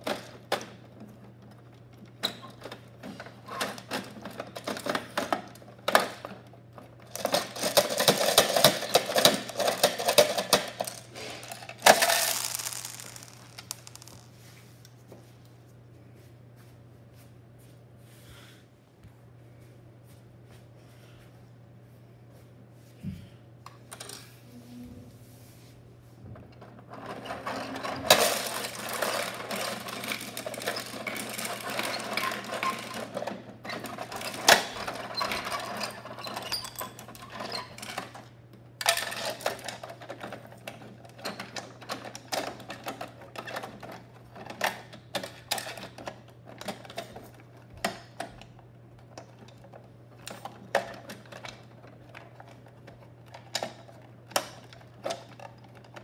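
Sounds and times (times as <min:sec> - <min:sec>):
plastic toy parts clicking: 0:07.1 - 0:14.2.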